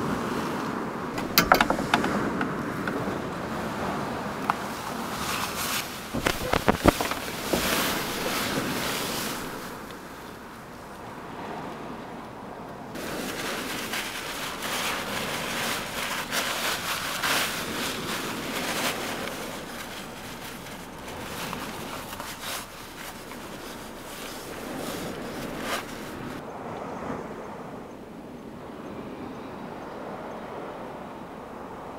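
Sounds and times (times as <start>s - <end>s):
surf: 0.0s - 27.8s
wind: 0.0s - 31.9s
knocks: 1.2s - 3.1s
plastic bag rustling: 4.7s - 10.2s, 13.0s - 26.4s.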